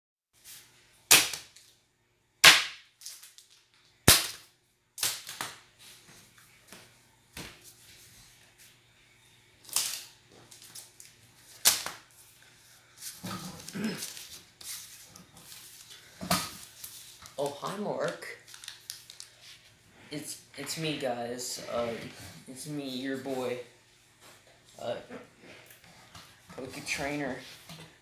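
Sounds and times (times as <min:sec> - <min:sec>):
foil packs slapping on a mat: 0:01.1 - 0:01.6, 0:02.4 - 0:05.6, 0:11.5 - 0:12.1
soft foil rustling: 0:09.6 - 0:20.1.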